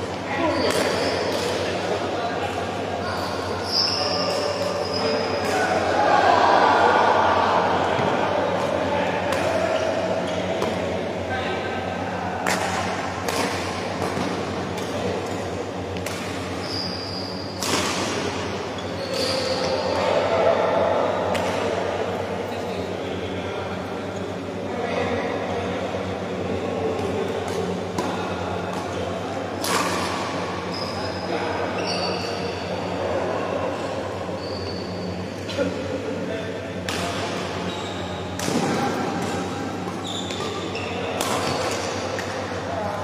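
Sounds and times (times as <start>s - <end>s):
voices: 0.0s - 43.0s
shoe squealing on court: 0.4s - 1.4s, 3.1s - 5.6s, 16.5s - 17.6s, 18.7s - 20.0s, 30.7s - 32.6s, 34.4s - 35.2s, 37.6s - 38.4s, 40.0s - 41.8s
racket striking shuttlecock: 12.4s - 15.0s, 17.6s - 18.5s, 38.4s - 40.5s, 41.2s - 42.4s.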